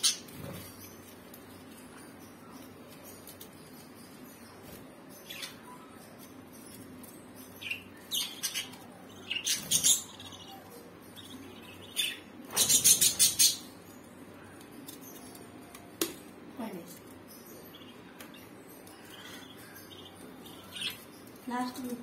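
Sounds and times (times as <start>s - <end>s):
budgerigars chirping: 7.6s - 10.6s, 11.2s - 13.8s.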